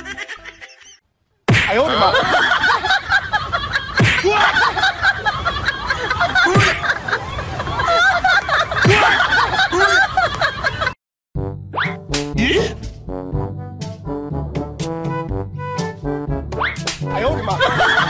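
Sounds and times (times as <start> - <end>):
crowd laughing: 0.0 - 1.0, 1.9 - 11.0, 17.3 - 18.0
sharp smacks: 1.5 - 1.8, 11.8 - 12.4, 16.6 - 17.1.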